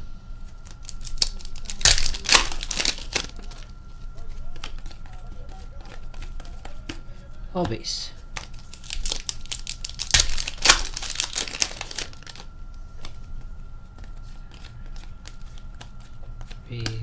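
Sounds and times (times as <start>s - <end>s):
foil wrapper crinkling and tearing: 0.6s - 3.7s, 8.4s - 12.5s
cards rustling and clicking: 0.6s - 17.0s.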